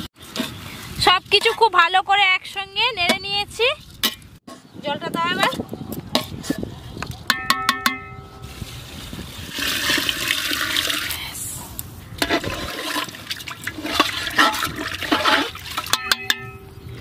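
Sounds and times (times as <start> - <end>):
ladle knocking on metal pot: 7.3 - 8.3, 15.8 - 16.7
water pouring into metal pot: 9.4 - 11.2, 12.2 - 16.6
ladle stirring liquid: 12.2 - 16.6.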